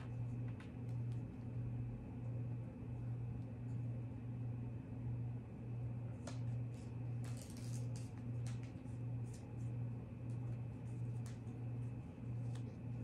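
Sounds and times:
steady low hum: 0.0s - 13.0s
paper folding and crinkling: 7.2s - 8.7s.

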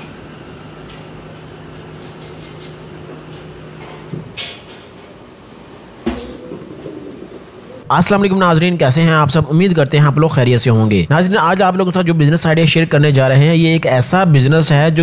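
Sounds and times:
bottle-filling machine humming: 0.0s - 4.3s.

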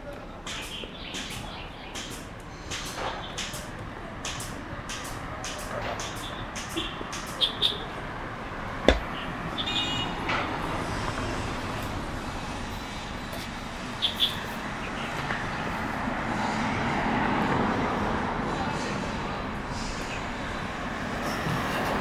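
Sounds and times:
street traffic: 0.0s - 22.0s
sharp click: 0.5s - 7.7s.

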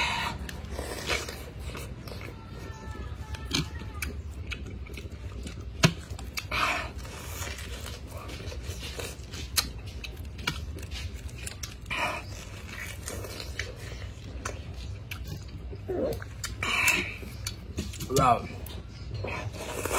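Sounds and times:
eating juicy pineapple: 0.0s - 19.9s.

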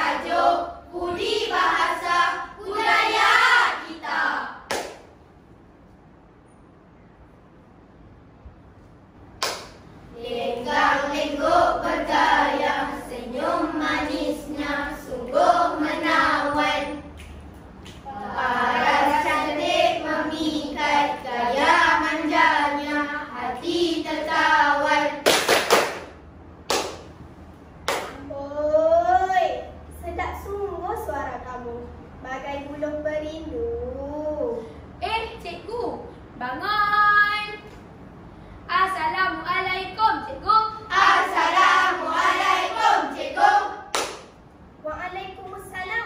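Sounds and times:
children chanting and singing: 0.0s - 4.7s, 10.1s - 17.2s, 18.0s - 25.2s, 39.9s - 43.9s
hand claps: 4.7s - 5.1s, 9.4s - 9.8s, 25.2s - 27.1s, 27.8s - 28.2s, 43.9s - 44.4s.

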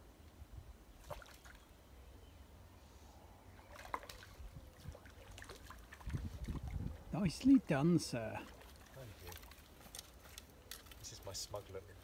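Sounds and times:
faint trickle of water: 3.6s - 7.4s, 8.2s - 11.4s.

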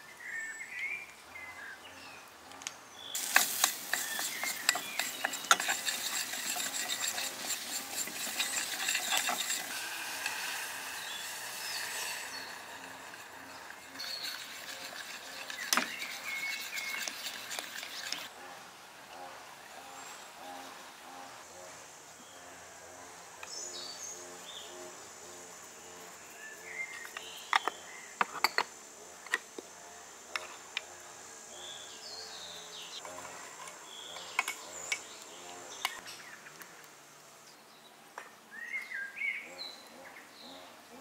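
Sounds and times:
birds chirping: 0.1s - 18.3s, 23.4s - 28.6s, 31.6s - 36.8s
kitchenware clinking: 3.2s - 10.4s
high insect drone: 3.2s - 36.0s.

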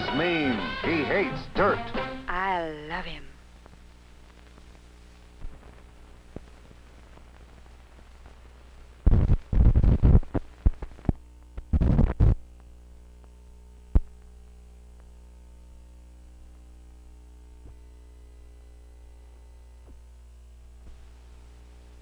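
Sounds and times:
electrical hum: 0.0s - 22.0s
loud crackling noise: 3.2s - 15.3s, 20.8s - 22.0s
faint ticks: 3.6s - 21.9s.

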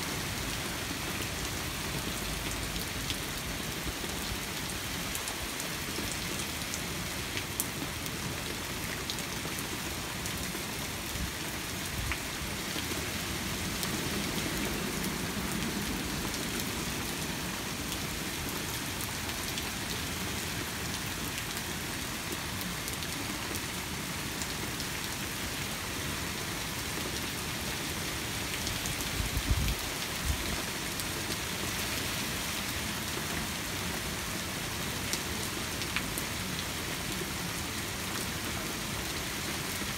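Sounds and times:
heavy rain hissing: 11.0s - 19.0s.

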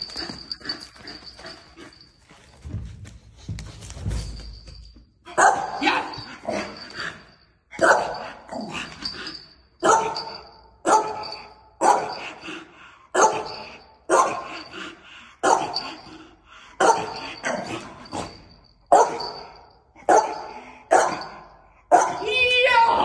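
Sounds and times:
dog barking with echo: 7.8s - 8.2s, 9.8s - 10.3s, 10.9s - 12.2s, 18.9s - 19.3s, 20.1s - 22.2s.

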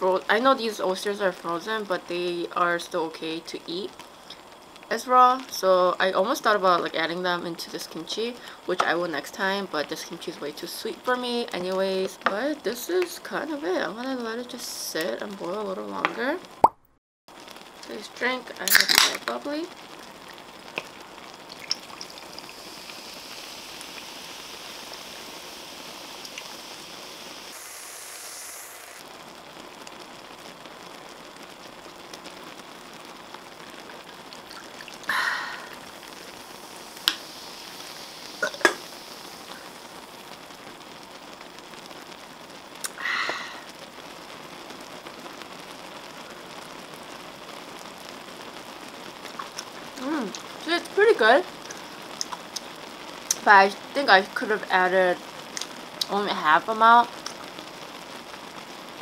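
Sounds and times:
broth boiling in pan: 0.0s - 16.7s, 17.3s - 59.0s
carbonated drink pouring and fizzing: 17.7s - 29.2s, 33.6s - 41.6s, 49.2s - 50.7s.

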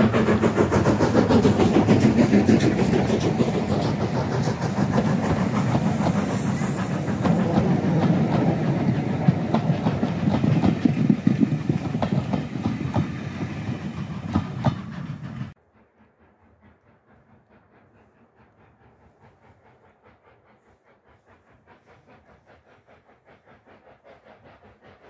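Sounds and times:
train wheels clattering over rail joints: 0.0s - 15.6s.

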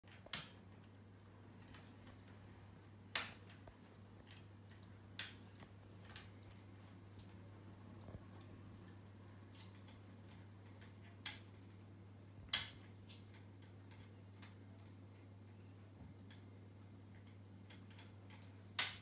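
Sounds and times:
faint steady hum: 0.1s - 19.0s.

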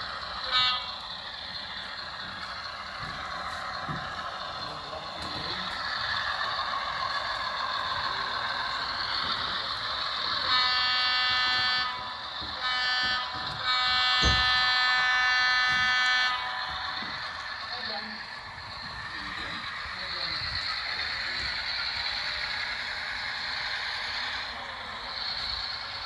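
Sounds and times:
model train running noise: 0.0s - 26.0s
electronic train horn: 0.4s - 1.1s, 10.3s - 17.9s.

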